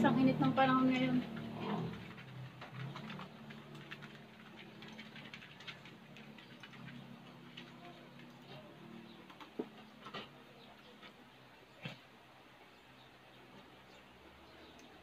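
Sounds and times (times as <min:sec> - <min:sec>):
chewing crispy food: 0:01.3 - 0:10.3.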